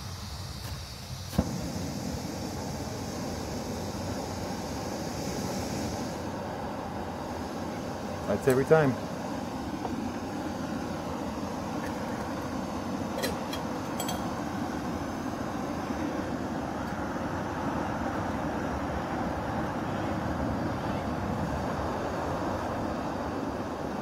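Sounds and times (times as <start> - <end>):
stove burner hissing: 0.0 - 24.0
light metallic clicks of pot: 13.2 - 14.3.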